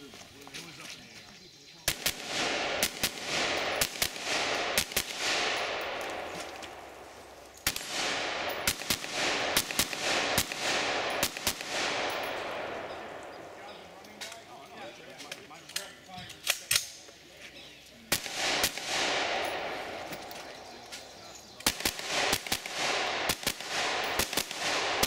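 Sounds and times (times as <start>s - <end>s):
rifle firing rapid shots: 1.9s - 6.9s, 7.6s - 13.5s, 18.1s - 20.2s, 21.6s - 25.0s.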